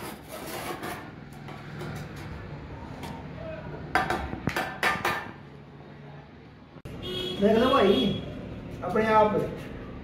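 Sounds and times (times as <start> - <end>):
trowel scraping mortar on bricks: 0.0 - 1.2.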